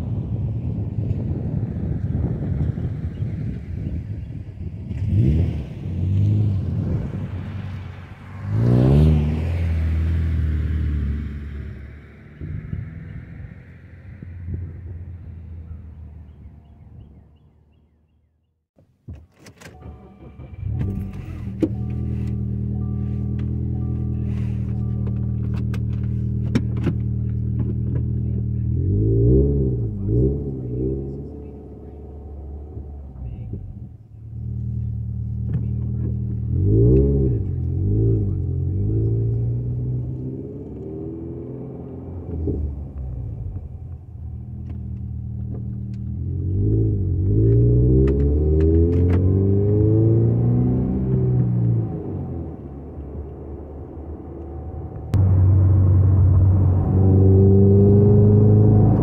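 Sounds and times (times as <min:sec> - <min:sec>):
car engine idling and revving: 0:00.0 - 0:17.9, 0:18.8 - 0:59.0
car chime beeping: 0:19.7 - 0:25.9.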